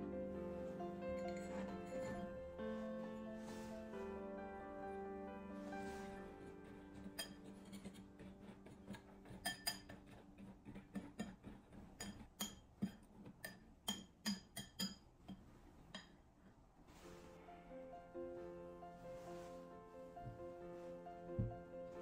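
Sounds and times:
utensil clinking in glass bowl: 9.3 - 10.1.

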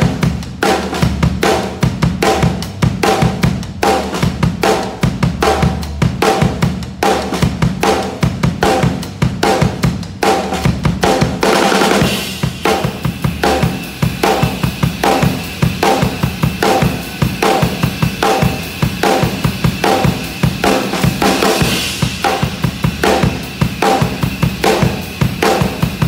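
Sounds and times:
bass drum and snare hits: 0.0 - 26.0.

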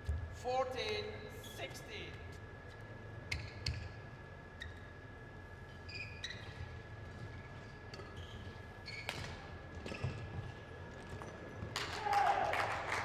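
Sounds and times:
shoes squeaking on court floor: 2.6 - 11.8.

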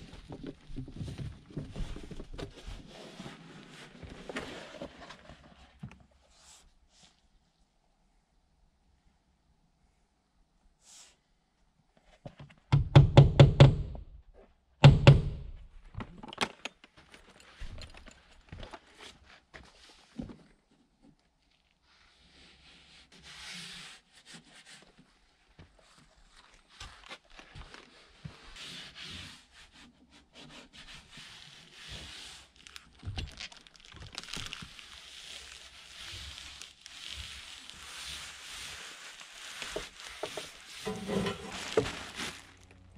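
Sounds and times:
fasteners knocking into wall: 12.7 - 14.0
membrane rubbing and peeling: 33.6 - 42.8.

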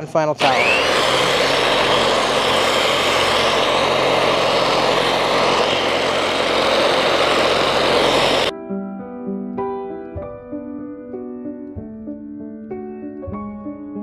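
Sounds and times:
electric polisher buffing metal: 0.4 - 8.5
soft piano music: 8.5 - 14.0.

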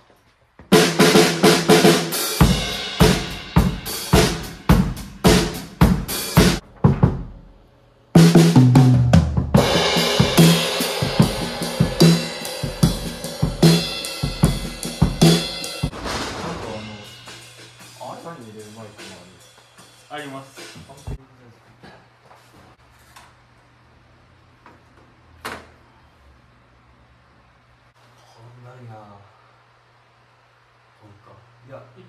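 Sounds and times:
kick and snare beat: 0.7 - 7.3, 8.2 - 20.0
tom fill: 8.2 - 19.2
cymbals washing: 9.6 - 21.2.

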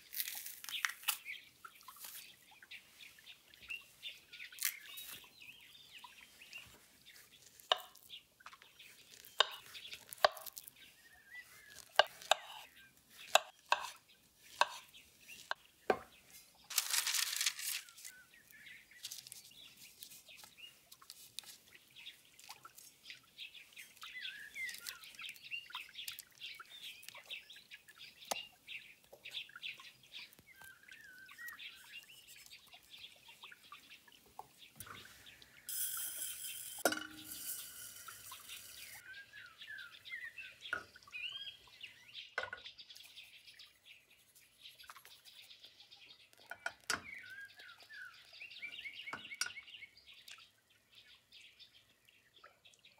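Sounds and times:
small birds chirping: 0.0 - 52.9
kitchen utensils clicking: 35.7 - 39.0.

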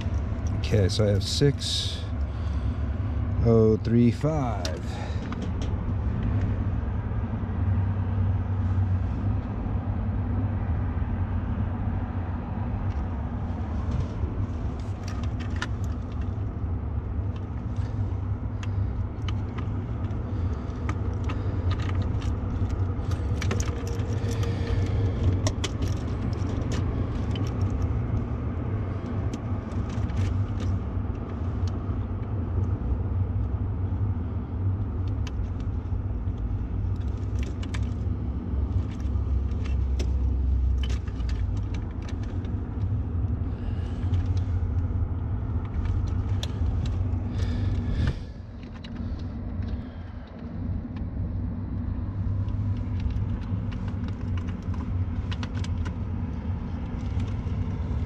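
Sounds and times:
steady low rumble: 0.0 - 58.0
plastic plugs clicking and rattling: 18.6 - 28.3, 52.4 - 56.1.

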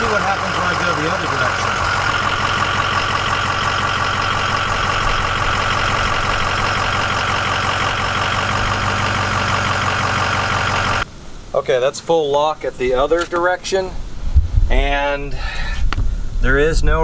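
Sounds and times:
diesel engine idling: 0.0 - 11.1
steady whine: 0.0 - 15.4.

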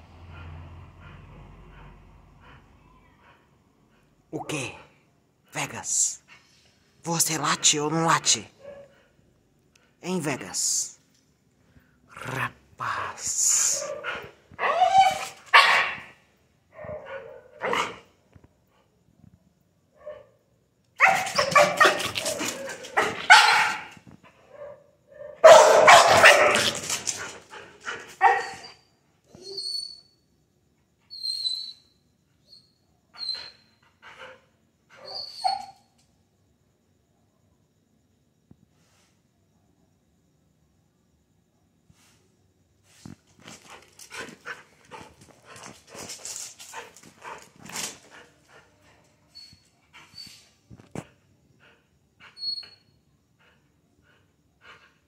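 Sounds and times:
dog play-barking: 13.8 - 16.1, 16.8 - 18.0, 21.0 - 24.0, 24.6 - 27.3, 27.9 - 28.7.

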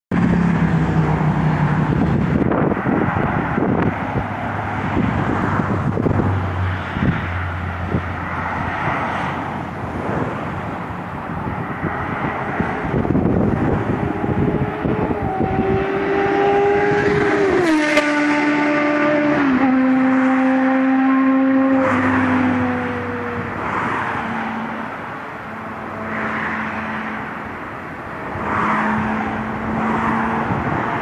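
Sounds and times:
motorway traffic: 0.1 - 31.0
wind: 0.1 - 31.0
motorcycle engine passing at speed: 11.9 - 24.0.

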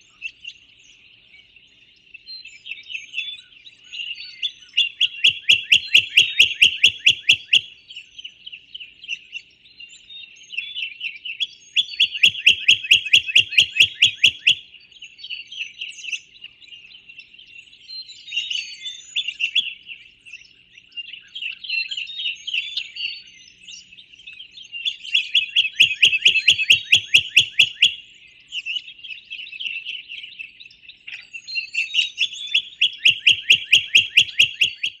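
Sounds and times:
other birds trilling and chirping: 0.0 - 35.0
songbird loud fast trill: 4.9 - 7.7, 11.8 - 14.6, 25.3 - 28.1, 32.4 - 35.0.

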